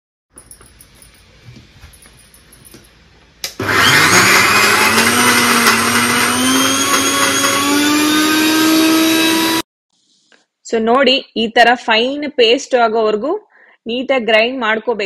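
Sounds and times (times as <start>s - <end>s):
mixer grinder running: 3.4s - 9.6s.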